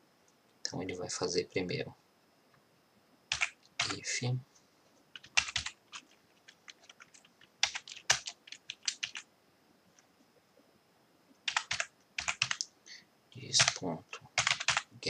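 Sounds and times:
typing on computer keyboard: 3.3s - 4.0s, 5.2s - 9.2s, 11.5s - 12.7s, 13.6s - 14.9s.

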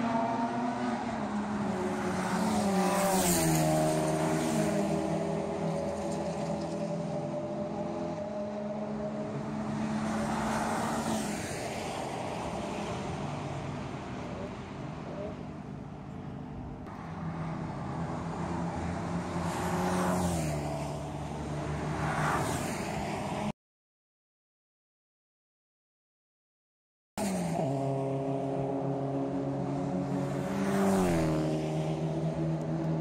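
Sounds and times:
race car engines at high revs: 0.0s - 15.6s, 27.2s - 33.0s
car rushing past: 17.2s - 23.5s, 27.2s - 32.7s.

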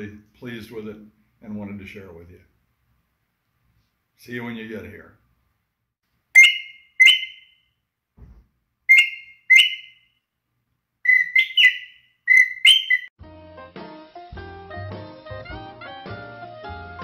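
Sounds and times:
bird-call whistle chirps: 6.4s - 7.7s, 8.9s - 10.2s, 11.0s - 13.1s.

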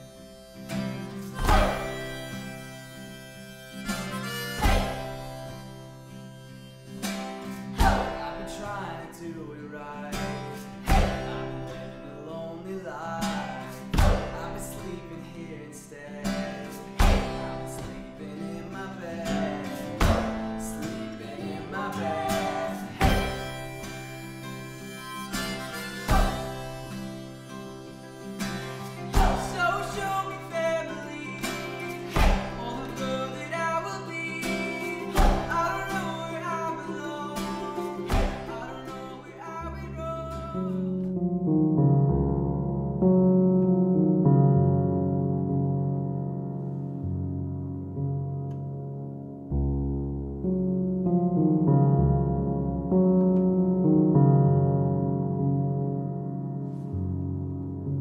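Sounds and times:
person singing: 0.0s - 3.3s, 7.6s - 41.1s
acoustic guitar: 0.0s - 58.0s
strong low beat: 7.8s - 8.2s
music with sustained tones: 21.0s - 32.4s.

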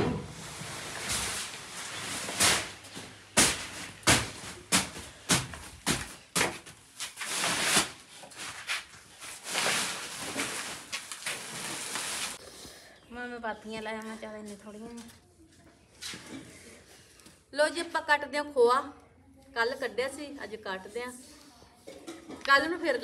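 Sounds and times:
sacks dragged: 0.0s - 5.4s, 7.1s - 12.4s
sacks rustling: 0.0s - 12.4s
sacks thumping: 0.0s - 12.4s.

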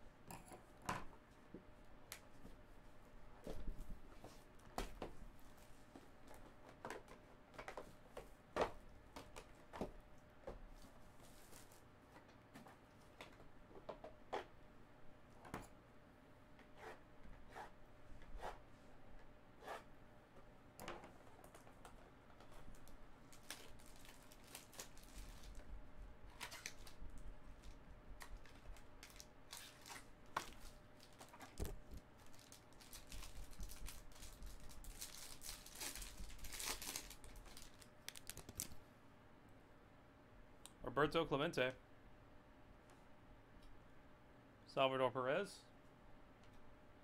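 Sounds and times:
wrapping tearing and crinkling: 22.7s - 25.7s, 26.3s - 27.0s, 27.6s - 31.6s, 32.2s - 38.8s.

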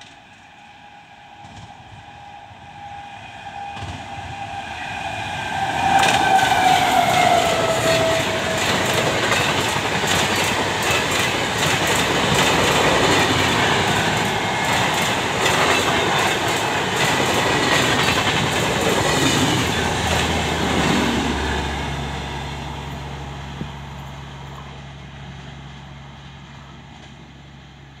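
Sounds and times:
train coaches rushing past: 0.0s - 28.0s
wheels clattering over rail joints: 5.9s - 21.1s.

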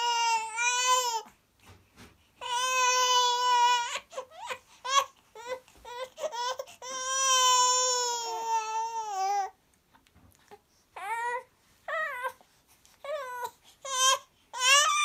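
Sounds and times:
baby crying: 0.0s - 1.3s, 2.4s - 9.6s, 11.0s - 12.4s, 13.0s - 15.0s.

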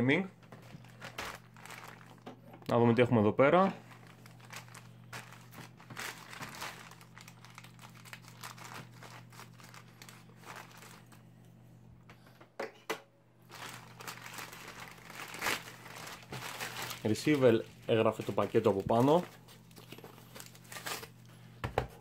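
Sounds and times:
plastic bag crinkling: 0.5s - 2.3s, 3.8s - 11.2s, 13.4s - 21.2s.

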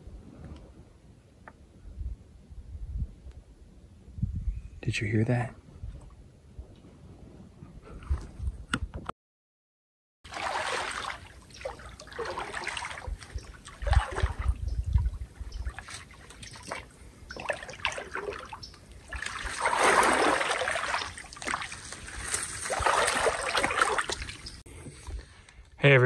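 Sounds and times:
wading through swamp water: 10.3s - 25.1s.

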